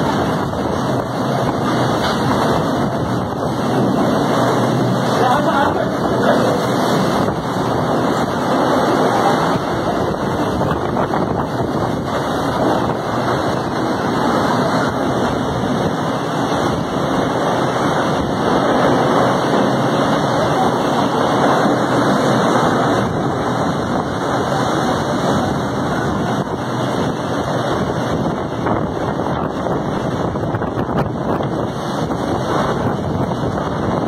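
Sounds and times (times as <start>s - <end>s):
strong storm wind: 0.0s - 34.0s.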